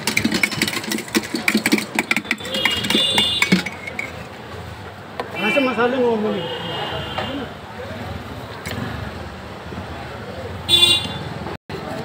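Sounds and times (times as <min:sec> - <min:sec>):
spoon scraping metal pot: 0:00.0 - 0:04.3.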